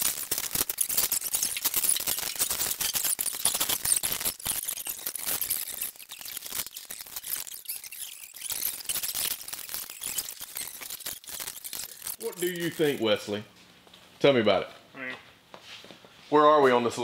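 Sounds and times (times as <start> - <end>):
hand tools clicking and rattling: 0.0 - 13.1.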